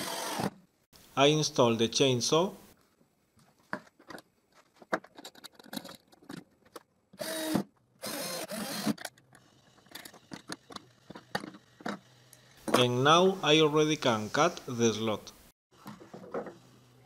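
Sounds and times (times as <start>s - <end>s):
cordless drill running: 0.0s - 0.5s, 7.2s - 9.0s
clicks and knocks of handling: 3.5s - 6.9s.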